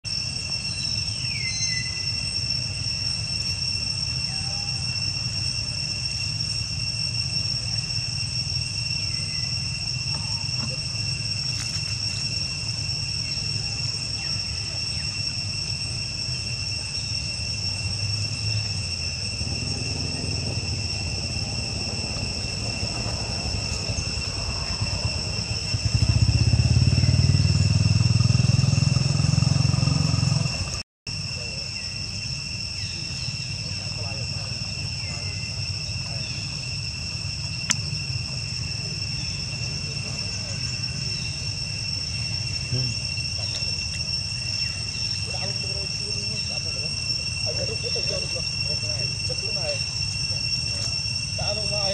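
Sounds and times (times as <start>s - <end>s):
insect drone: 0.0s - 51.9s
short falling whistled calls: 0.3s - 6.4s.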